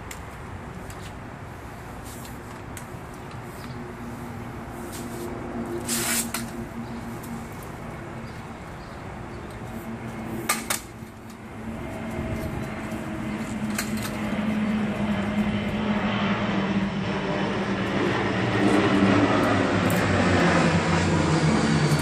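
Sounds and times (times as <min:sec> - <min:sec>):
low engine drone: 0:02.7 - 0:22.0.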